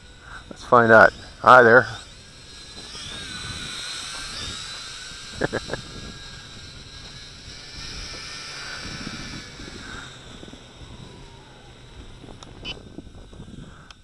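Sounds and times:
quadcopter motors whining: 0.0s - 14.0s.

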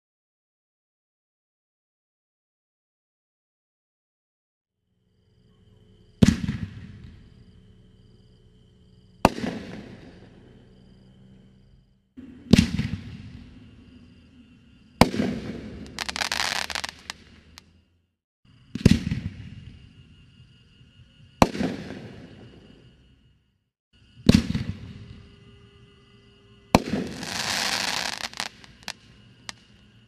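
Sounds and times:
firework launch thump: 12.2s - 13.4s
firework crackling: 15.0s - 17.6s, 26.8s - 29.7s.

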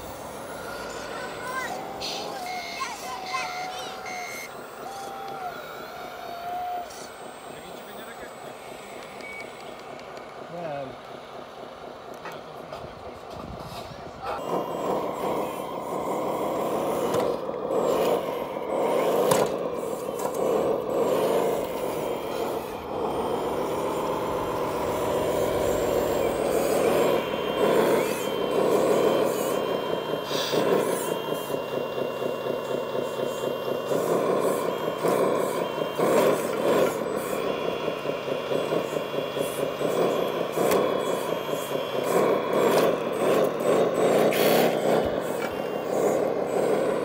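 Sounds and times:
thin high tone: 0.0s - 9.8s, 19.7s - 43.1s
motor whine: 0.0s - 12.4s, 14.1s - 47.0s.

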